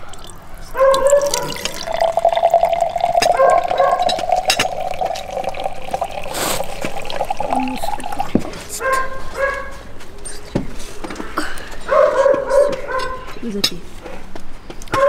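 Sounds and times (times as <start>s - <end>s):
liquid trickling into a glass: 0.0s - 8.8s.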